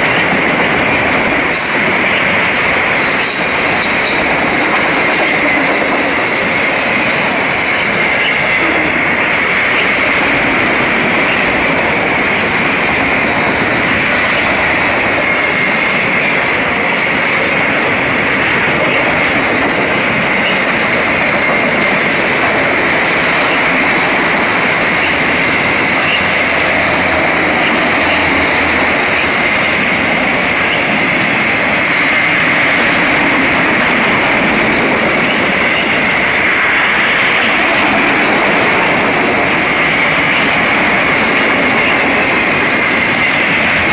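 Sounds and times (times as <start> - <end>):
train wheels rushing on rail: 0.0 - 43.9.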